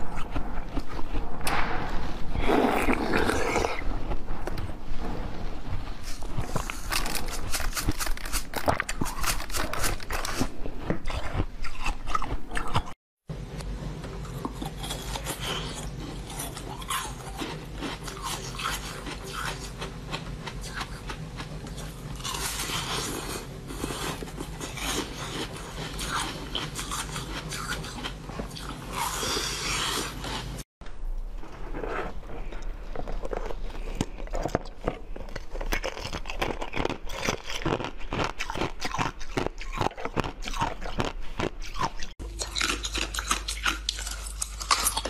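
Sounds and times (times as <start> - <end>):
chewing: 0.0 - 1.6, 5.7 - 13.0, 14.0 - 30.6, 31.7 - 45.0
steady low hum: 0.0 - 45.0
crunching frozen snacks: 6.0 - 13.0, 14.3 - 30.6, 32.4 - 45.0.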